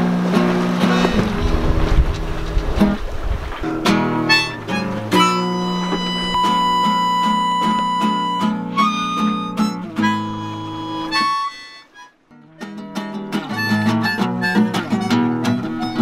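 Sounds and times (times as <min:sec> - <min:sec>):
acoustic guitar plucked: 0:00.0 - 0:16.0
harmonica: 0:04.0 - 0:16.0.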